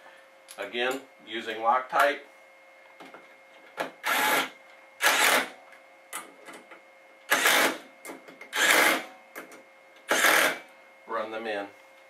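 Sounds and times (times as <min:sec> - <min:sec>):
cordless screwdriver running: 0:04.0 - 0:05.5, 0:07.3 - 0:07.8, 0:08.6 - 0:09.0, 0:10.1 - 0:10.6.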